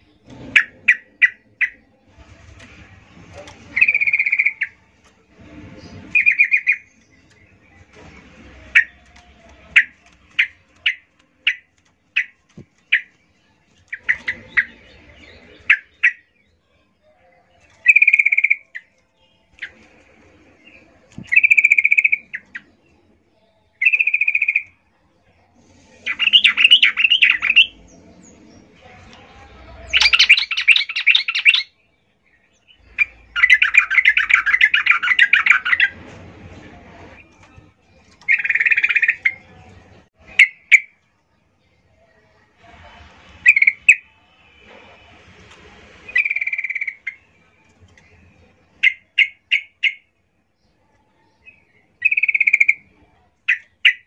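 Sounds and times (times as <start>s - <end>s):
bird sharp chips: 2.6s - 4.8s.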